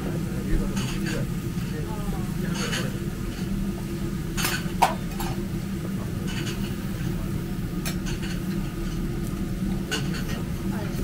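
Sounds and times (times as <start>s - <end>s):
metal utensils clinking on griddle: 2.5s - 3.0s, 6.3s - 6.8s, 9.9s - 10.5s.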